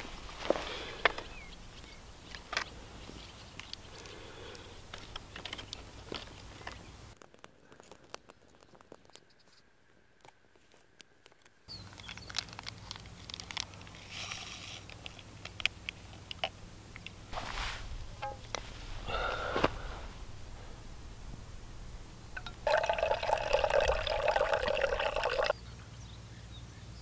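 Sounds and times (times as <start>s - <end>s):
dry twigs crackling: 10.2s - 25.5s.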